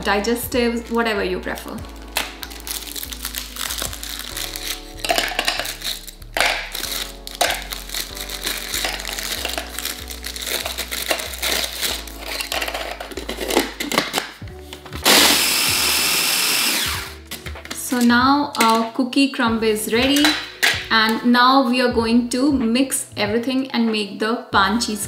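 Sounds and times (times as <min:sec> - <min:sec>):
background music: 0:00.0 - 0:25.0
biscuits snapping and dropping: 0:01.9 - 0:15.0
food processor running: 0:15.0 - 0:17.2.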